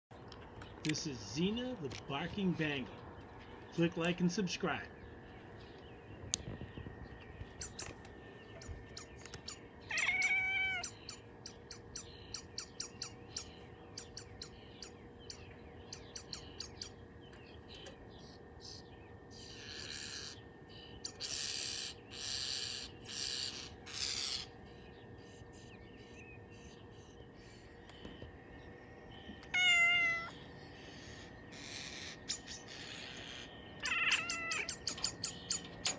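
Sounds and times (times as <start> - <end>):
cat chirping: 9.0 - 13.5, 29.5 - 30.4, 31.1 - 35.9.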